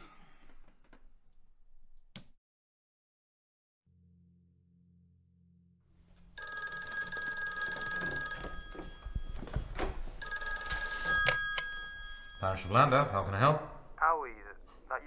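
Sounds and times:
telephone ringing: 0:06.2 - 0:14.1.

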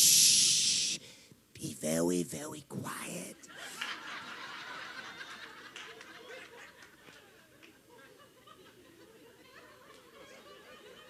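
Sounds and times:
congregation laughing: 0:03.5 - 0:07.2.

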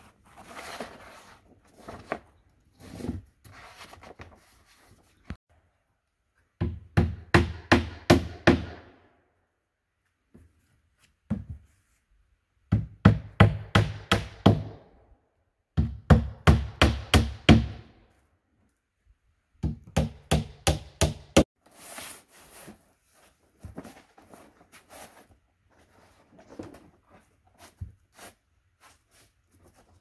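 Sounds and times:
hammer driving nails into roof: 0:15.8 - 0:17.9, 0:19.6 - 0:21.4.

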